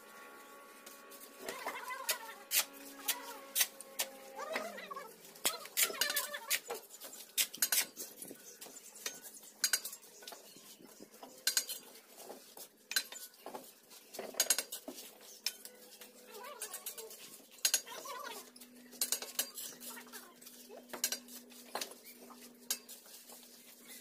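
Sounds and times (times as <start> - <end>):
trowel scraping mortar: 1.2 - 4.8, 5.4 - 8.1.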